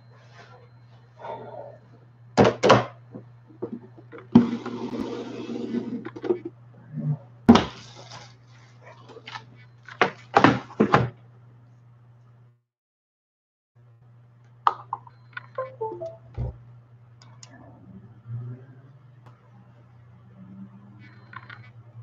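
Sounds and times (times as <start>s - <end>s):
steady low hum: 0.0s - 9.9s.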